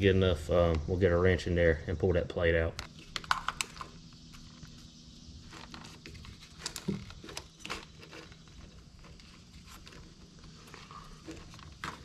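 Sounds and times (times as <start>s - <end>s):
plastic harness rustling: 5.4s - 12.0s.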